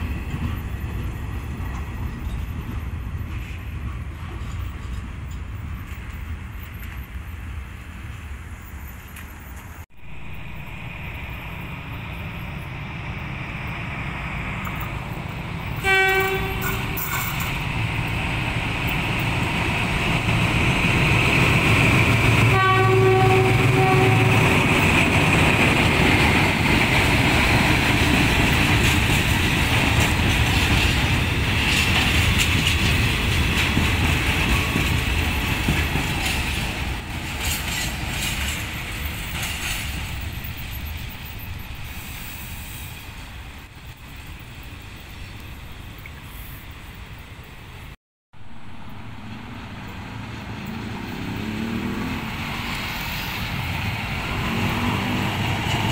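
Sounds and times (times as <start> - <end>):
locomotive engine rumble: 0.0 - 55.9
train wagons passing: 0.0 - 55.9
locomotive horn blasts: 15.8 - 17.4, 22.4 - 24.6.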